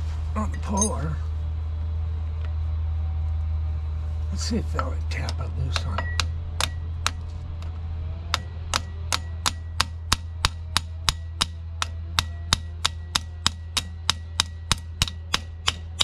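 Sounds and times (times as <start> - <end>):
hammer tapping on steel: 5.3 - 7.2, 8.4 - 16.0.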